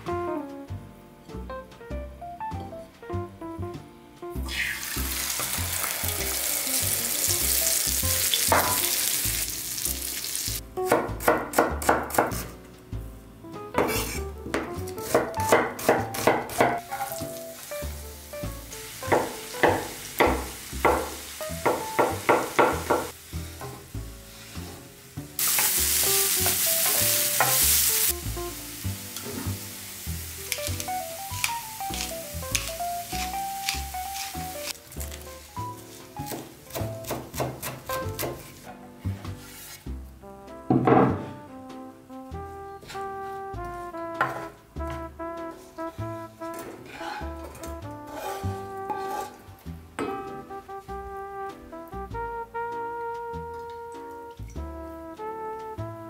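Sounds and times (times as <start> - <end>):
cutlet sizzling in oil: 4.3 - 10.7, 13.9 - 40.1, 45.9 - 49.8
vegetables sizzling in pan: 4.4 - 10.6, 16.8 - 38.6
knife chopping on wooden board: 8.5 - 8.8, 10.9 - 12.5, 13.8 - 17.2, 19.1 - 23.1, 36.2 - 38.6.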